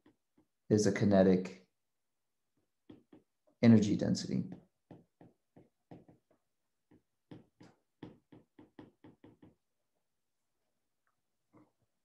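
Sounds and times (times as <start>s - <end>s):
stylus tapping glass screen: 2.6s - 3.6s, 4.4s - 9.7s.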